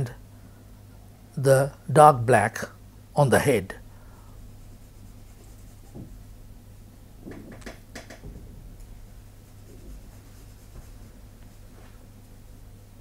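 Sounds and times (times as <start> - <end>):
low steady hum: 0.0 - 13.0
pencil scratching on paper: 4.6 - 6.0, 9.4 - 11.0.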